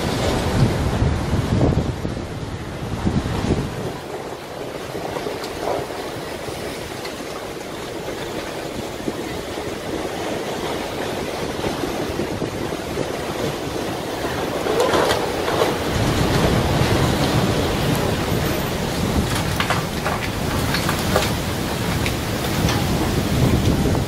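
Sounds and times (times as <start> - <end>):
storm surf crashing on breakwater: 0.0 - 24.0.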